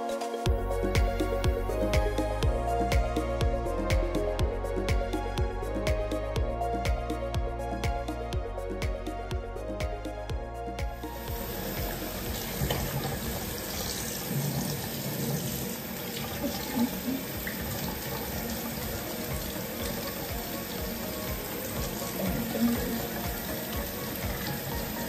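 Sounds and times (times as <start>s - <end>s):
water running from tap: 11.2s - 25.0s.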